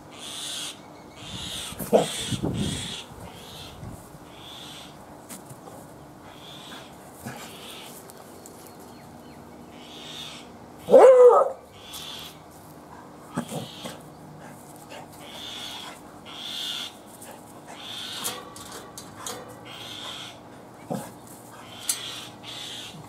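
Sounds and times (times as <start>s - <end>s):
dog whining bark: 1.8s - 2.3s, 10.8s - 11.7s.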